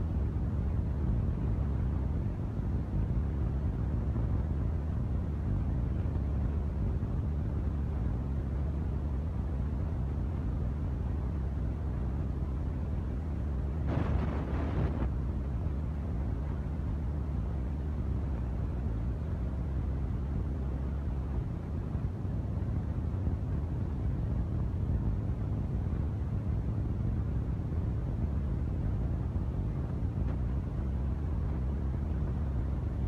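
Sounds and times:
burst of noise: 13.9 - 15.1.

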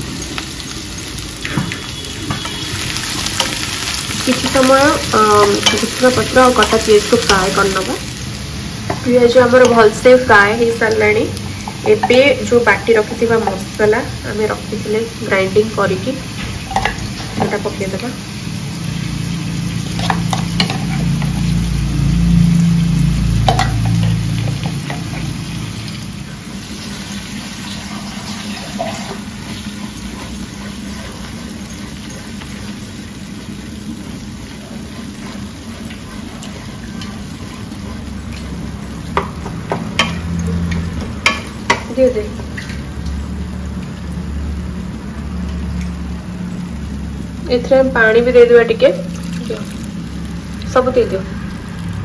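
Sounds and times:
paste sizzling in oil: 0.0 - 44.0, 45.0 - 52.0
spatula scraping pan: 26.6 - 41.9.

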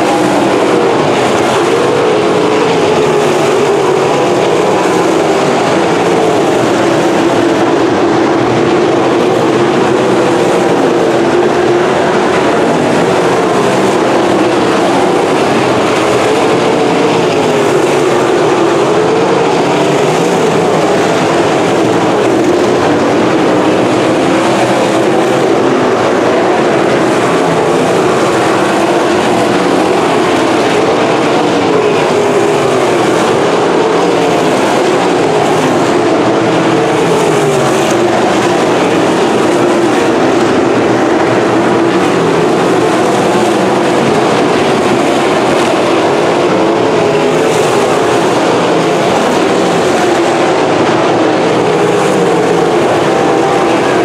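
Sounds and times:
race car engines: 0.0 - 54.0.

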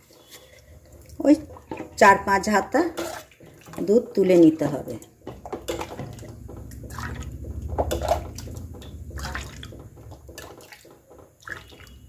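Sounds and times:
milk splashing and trickling: 0.0 - 12.0
ladle knocking on metal rims: 5.2 - 11.4.

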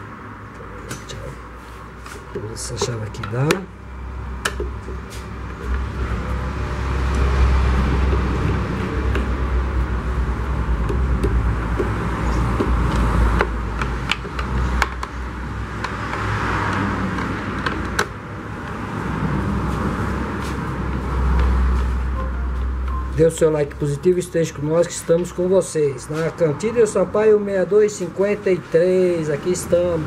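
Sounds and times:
steady low rumble: 3.7 - 14.0.

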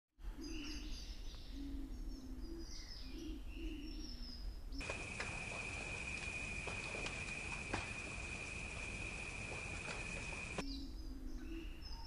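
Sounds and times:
birds chirping: 4.8 - 10.7.

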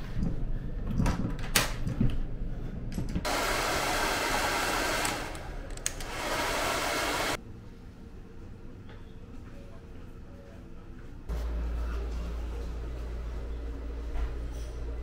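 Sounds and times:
hair dryer blowing: 3.3 - 7.4.

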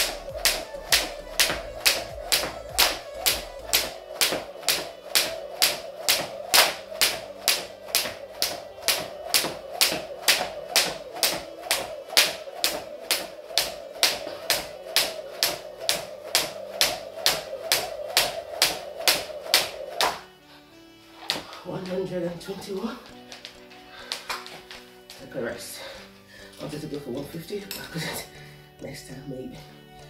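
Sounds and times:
skipping rope slapping wooden floor: 0.0 - 20.3, 21.3 - 22.0.

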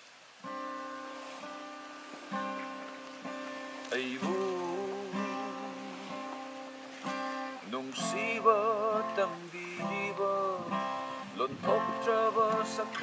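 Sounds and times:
strummed acoustic guitar: 0.4 - 13.0
man singing a slow song: 3.8 - 6.7, 7.3 - 13.0.

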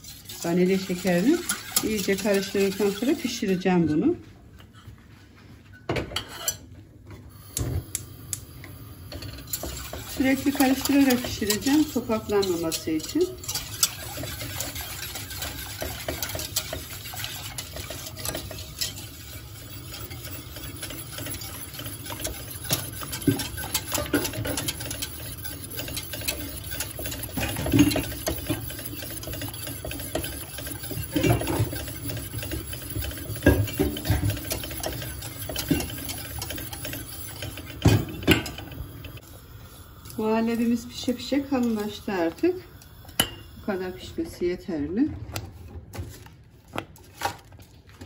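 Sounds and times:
wire whisk scraping a steel pot: 0.0 - 4.1, 6.2 - 6.6, 9.1 - 39.3, 40.1 - 44.2.

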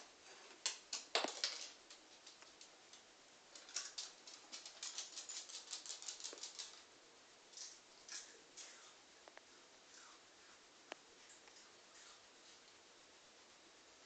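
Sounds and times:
dog claws clicking on floor: 0.6 - 6.9.

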